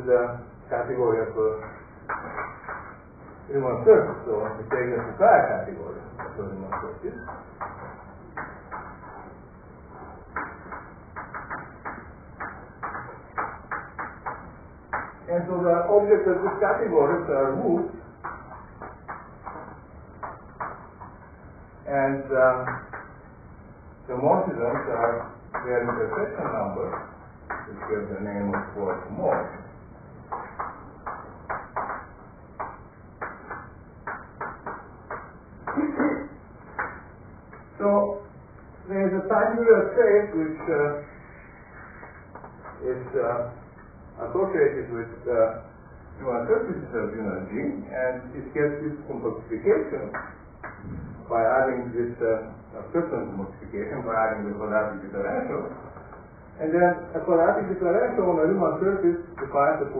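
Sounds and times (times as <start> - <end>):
chalk tapping on blackboard: 10.3 - 15.2, 24.4 - 29.6, 30.3 - 37.0.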